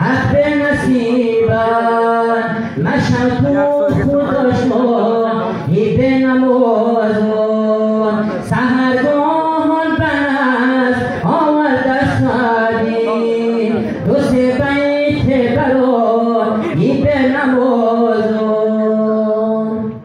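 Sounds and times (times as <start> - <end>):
man chanting over loudspeaker: 0.0 - 20.0.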